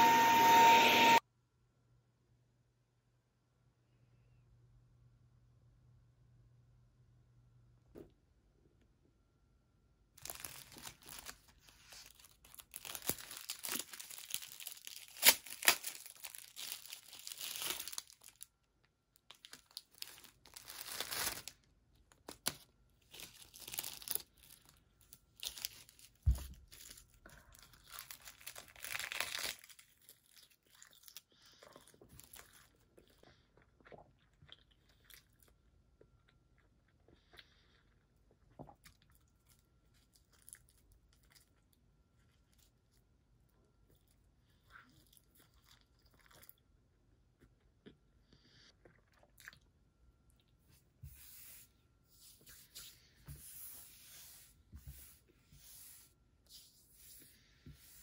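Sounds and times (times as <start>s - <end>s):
dried seaweed crackling: 10.2s - 18.5s, 19.3s - 21.6s, 22.2s - 31.2s
plastic wrapper tearing and crinkling: 10.2s - 18.6s, 19.2s - 31.2s.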